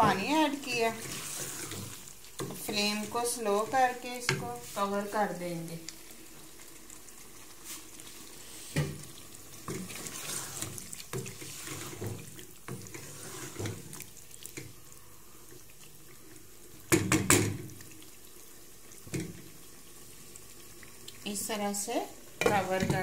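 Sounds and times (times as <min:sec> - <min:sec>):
spoon stirring wet curry: 0:00.1 - 0:02.9.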